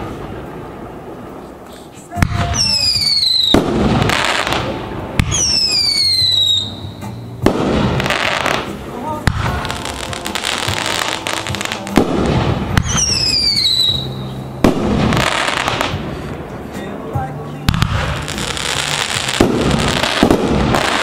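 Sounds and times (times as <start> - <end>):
firework crackle: 0.0 - 21.0
firework reports: 0.0 - 21.0
falling firework whistles: 1.7 - 4.5, 5.2 - 7.2, 12.8 - 16.2.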